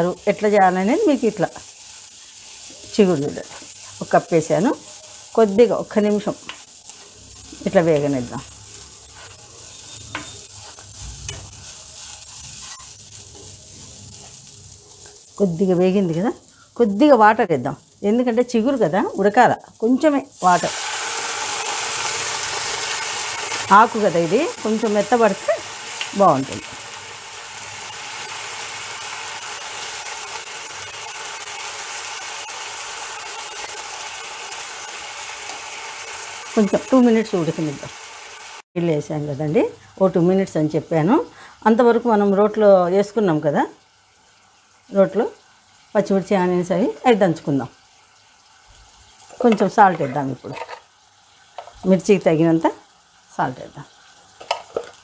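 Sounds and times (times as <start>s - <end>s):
leaves sizzling in oil: 0.0s - 55.0s
spatula scraping a pan: 8.8s - 15.2s
spatula scraping and tapping pan: 9.1s - 11.5s, 49.3s - 50.8s.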